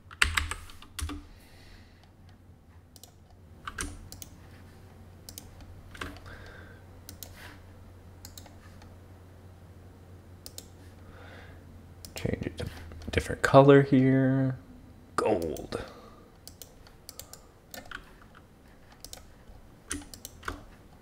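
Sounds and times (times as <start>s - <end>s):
low steady hum: 0.0s - 21.0s
mouse and keyboard clicks: 8.2s - 8.9s, 19.9s - 20.7s.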